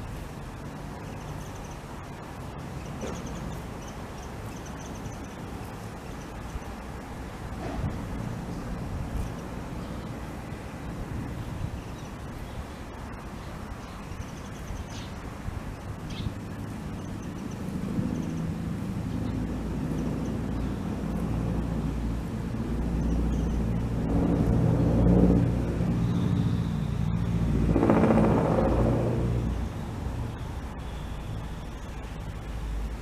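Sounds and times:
engine running with low hum: 15.7s - 33.0s.

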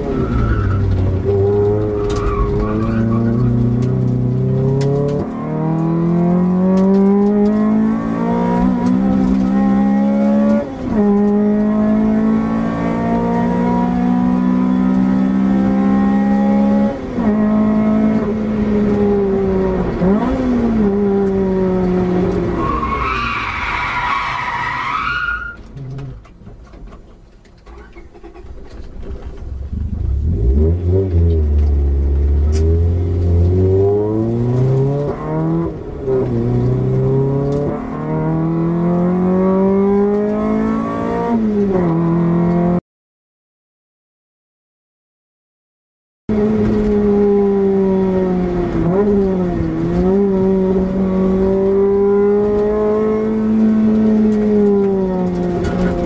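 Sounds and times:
car engine revving: 0.0s - 26.3s, 27.7s - 42.8s, 46.3s - 56.0s.

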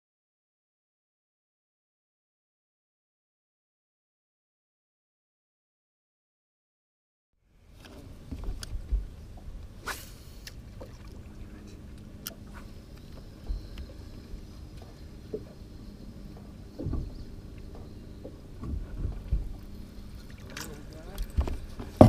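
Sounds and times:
low rumble: 10.6s - 22.0s
dull thumps on hull: 16.4s - 19.6s.

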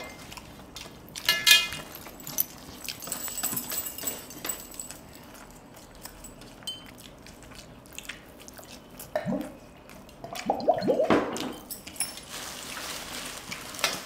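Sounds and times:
wet chewing and lip-smacking: 0.0s - 1.9s, 4.9s - 10.6s.

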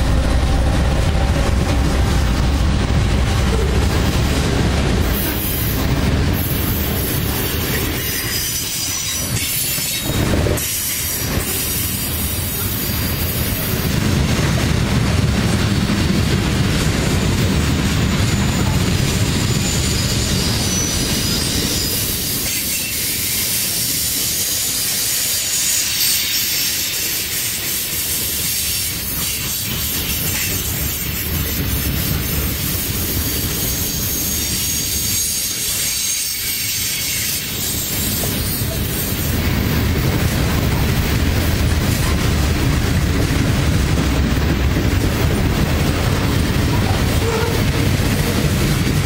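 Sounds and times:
freight train rolling past: 0.0s - 49.0s
high wheel squeals: 18.3s - 27.1s, 33.3s - 39.0s.

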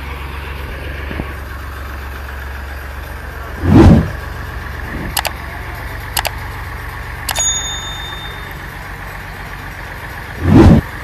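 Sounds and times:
drilling rig engine humming: 2.8s - 11.0s
sharp clicks: 5.2s - 5.4s, 6.2s - 6.4s, 7.3s - 8.6s.

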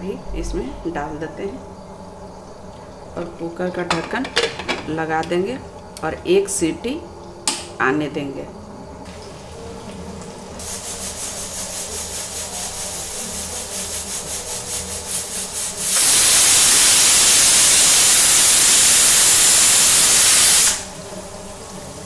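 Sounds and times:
pressure cooker whistle: 15.7s - 21.0s.

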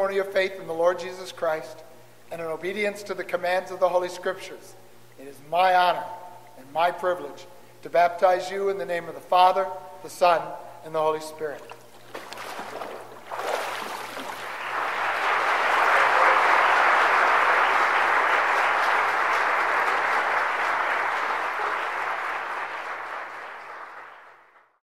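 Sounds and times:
congregation applauding: 13.4s - 24.8s.

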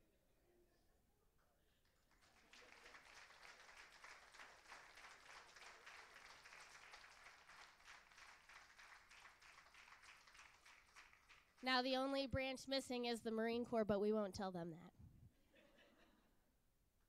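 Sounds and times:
audience applauding: 2.0s - 11.6s.

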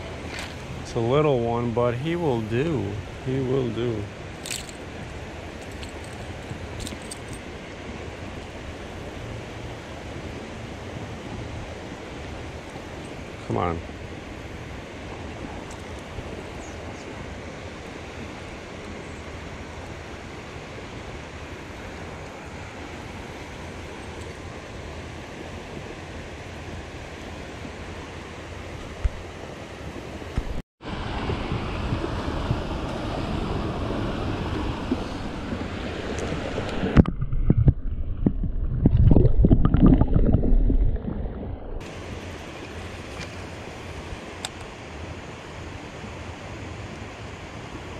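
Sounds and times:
wind buffeting on microphone: 30.3s - 42.0s.

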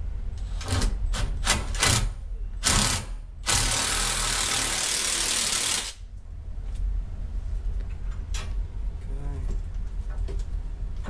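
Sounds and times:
cordless drill running: 2.6s - 6.0s.

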